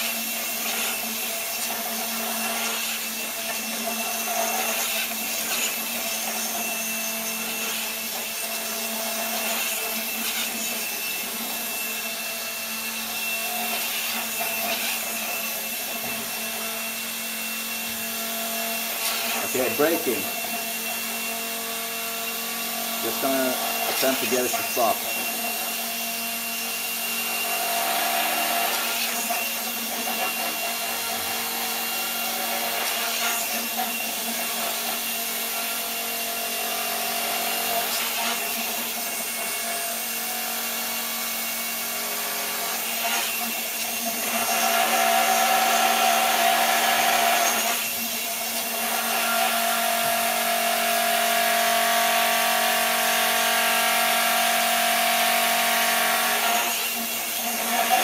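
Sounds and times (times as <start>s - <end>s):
electric motors whining: 0.0s - 58.0s.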